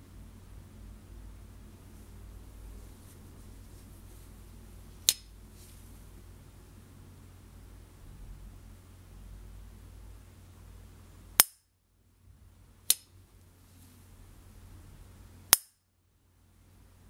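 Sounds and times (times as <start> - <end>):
lighter lid snapping with metallic ping: 11.4 - 11.6.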